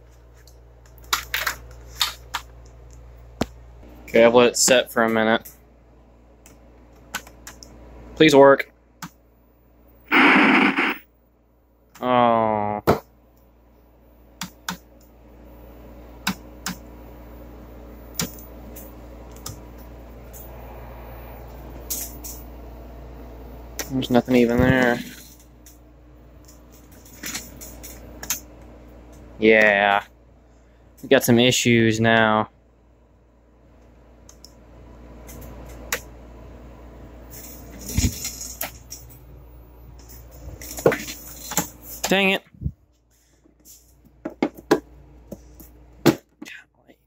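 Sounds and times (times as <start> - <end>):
low hum and hiss: 0.0 - 47.0.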